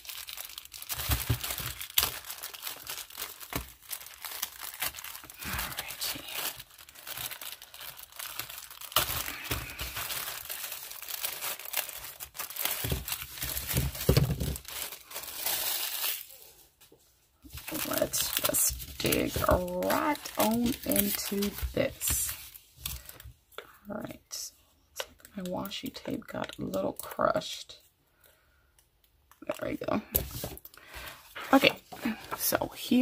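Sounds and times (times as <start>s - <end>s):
packaging crinkling: 0.0s - 16.6s, 17.4s - 23.3s.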